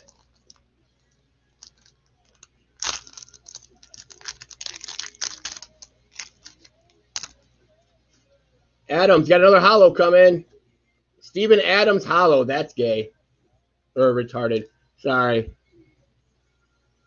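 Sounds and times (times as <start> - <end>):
wrapper crinkling and tearing: 0.0 - 0.6, 1.6 - 7.3
cards being handled: 1.6 - 7.4.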